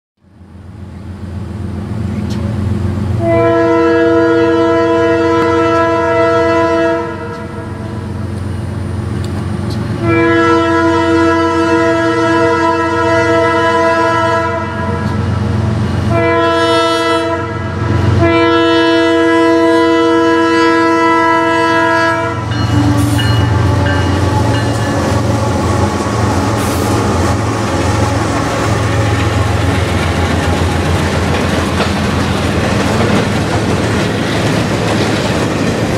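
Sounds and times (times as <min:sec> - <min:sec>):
locomotive rumble: 0:00.3 - 0:35.9
train wheels rattling on rail: 0:01.0 - 0:04.0, 0:04.7 - 0:06.2, 0:07.1 - 0:10.1, 0:14.2 - 0:16.3, 0:21.7 - 0:35.9
train horn blasts: 0:03.2 - 0:08.2, 0:10.0 - 0:15.4, 0:16.0 - 0:29.9.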